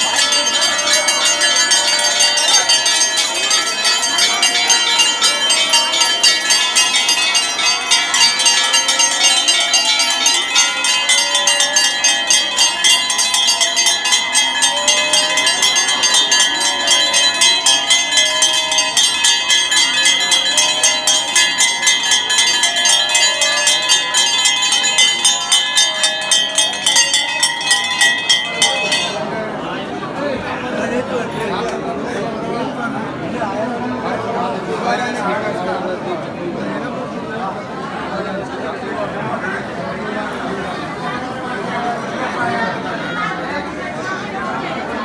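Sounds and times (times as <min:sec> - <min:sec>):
temple bells ringing: 0:00.0 - 0:36.0
people's voices: 0:00.0 - 0:45.0.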